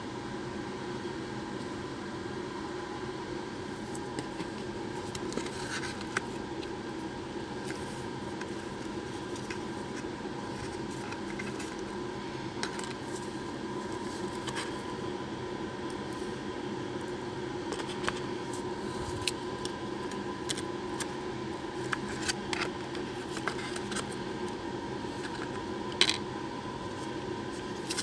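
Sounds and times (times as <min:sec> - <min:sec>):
steady background hum: 0:00.0 - 0:28.0
cardboard and paper rustling: 0:03.8 - 0:06.8, 0:07.6 - 0:11.9, 0:12.6 - 0:14.8, 0:21.8 - 0:24.2, 0:26.9 - 0:28.0.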